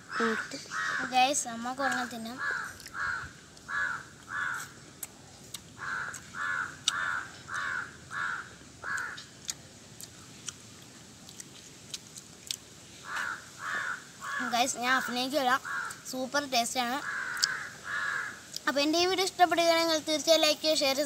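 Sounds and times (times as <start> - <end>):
crows cawing: 0.0 - 4.8, 5.8 - 9.3, 13.0 - 14.8, 15.6 - 16.1, 17.0 - 18.5.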